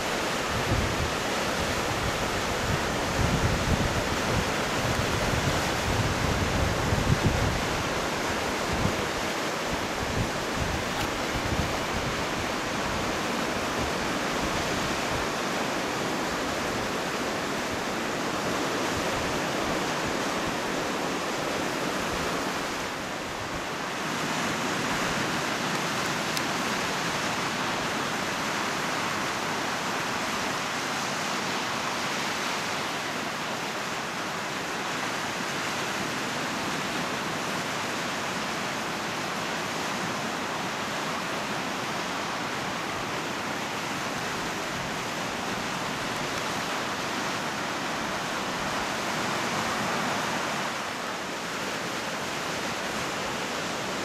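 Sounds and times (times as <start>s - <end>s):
surf breaking on boulder beach: 0.0s - 54.0s
wind buffeting microphone: 0.1s - 15.4s.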